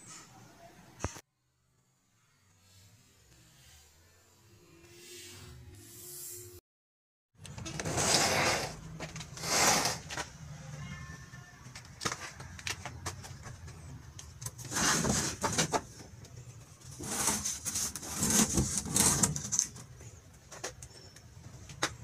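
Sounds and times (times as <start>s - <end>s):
plywood sheets scraping: 7.6s - 10.3s, 14.5s - 16.0s, 16.8s - 19.8s.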